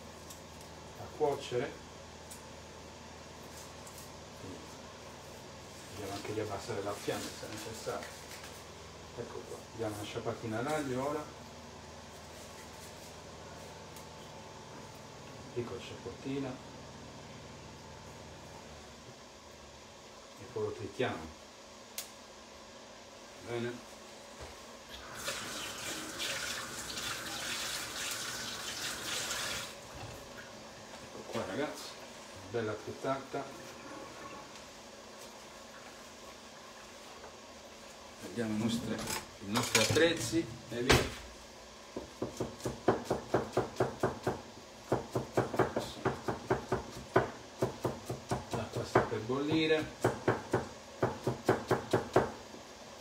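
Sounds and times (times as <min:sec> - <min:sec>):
water running from tap: 0:25.0 - 0:29.8
knife chopping on wooden board: 0:42.0 - 0:52.4.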